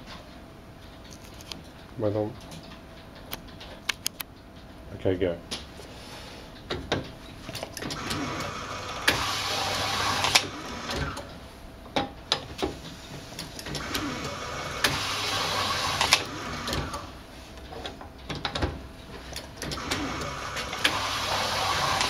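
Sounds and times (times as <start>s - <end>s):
sharp clicks: 2.6s - 4.5s
label applicator motor whirring: 7.9s - 11.3s, 13.7s - 17.2s, 19.7s - 22.0s.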